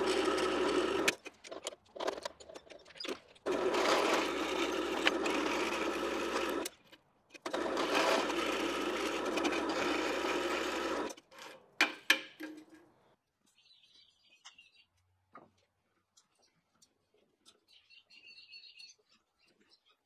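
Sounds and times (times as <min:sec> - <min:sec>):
drill press bit cutting steel: 0:00.0 - 0:01.2, 0:03.5 - 0:06.7, 0:07.4 - 0:11.2.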